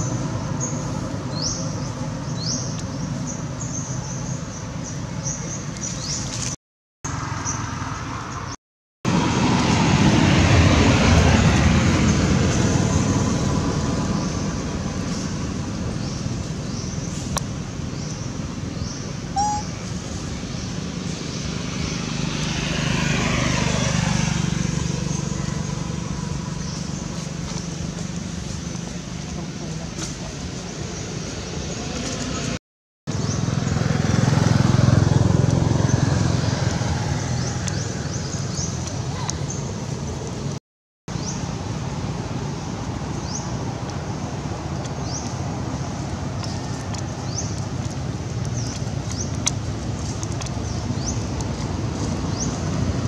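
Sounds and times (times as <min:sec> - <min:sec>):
low outdoor rumble: 0:09.1 - 0:32.6
bird chirping: 0:17.9 - 0:22.0
short squeak: 0:19.4 - 0:19.7.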